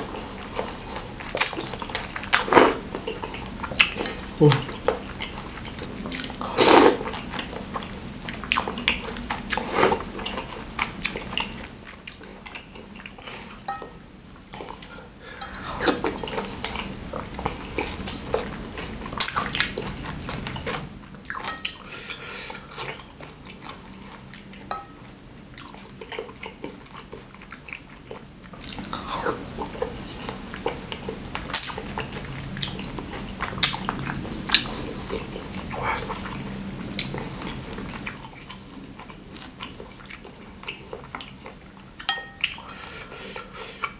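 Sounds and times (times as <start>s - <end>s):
chewing: 0.0s - 43.9s
slurping noodles: 6.2s - 7.6s.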